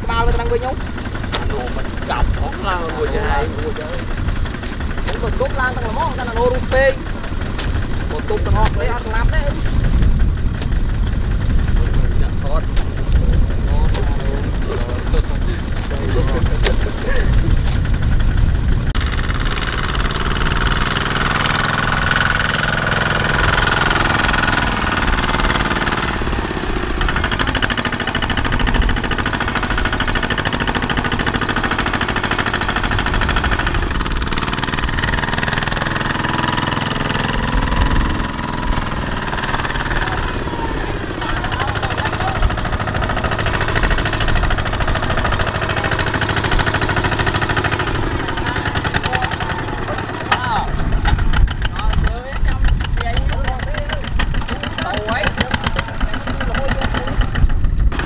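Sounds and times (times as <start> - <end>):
diesel engine knocking: 0.0 - 58.0.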